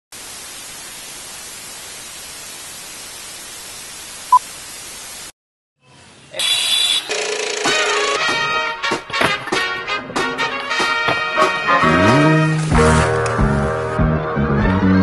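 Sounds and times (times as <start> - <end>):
tv static hiss: 0.2 - 5.3.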